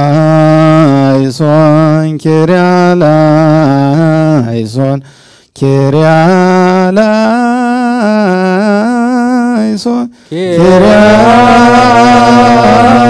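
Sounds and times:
man chanting: 0:00.0 - 0:05.0, 0:05.6 - 0:13.0.

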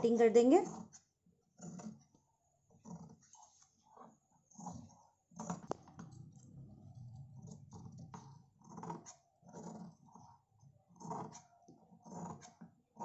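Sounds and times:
scissors snipping fabric: 0:11.0 - 0:13.0.

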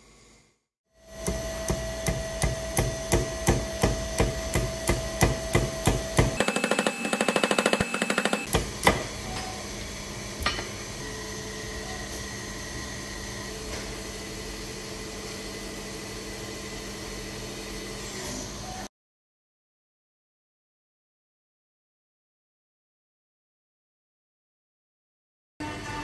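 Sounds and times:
hammer striking metal: 0:01.1 - 0:09.1.

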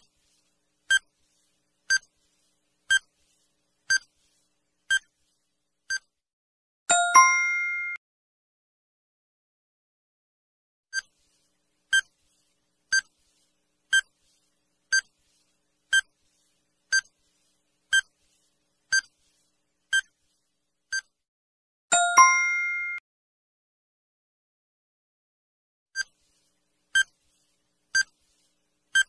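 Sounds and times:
multi-tone chime: 0:06.9 - 0:08.0, 0:21.9 - 0:23.0.

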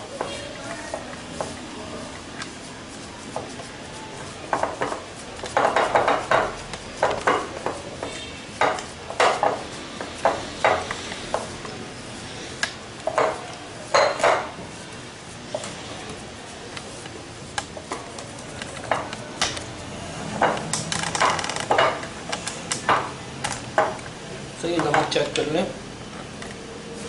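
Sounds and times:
hands kneading mashed potato: 0:00.0 - 0:19.9.

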